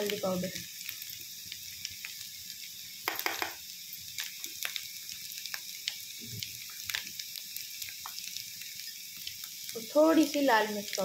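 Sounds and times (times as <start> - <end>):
oil sizzling in a pan: 0.0 - 11.0
metal spatula knocking on pan: 3.1 - 3.6.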